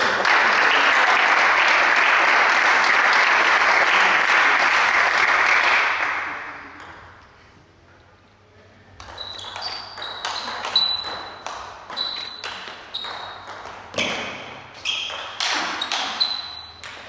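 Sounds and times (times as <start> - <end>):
table tennis ball hits: 6.7 - 7.2, 9.0 - 17.0.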